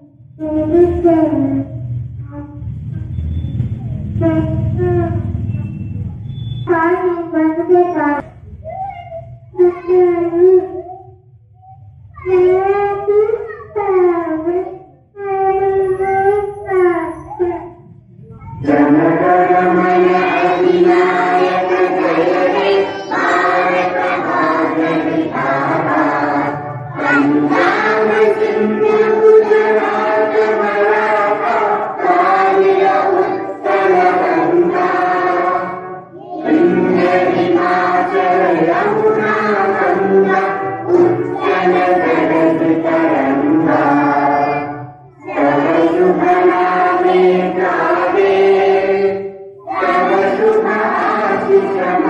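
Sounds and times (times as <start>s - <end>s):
children singing in unison: 14.1s - 17.8s, 18.6s - 52.0s.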